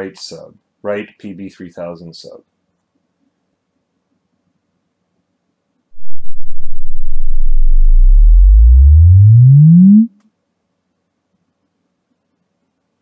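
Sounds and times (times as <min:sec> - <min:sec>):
low sine sweep tone: 0:06.0 - 0:10.1.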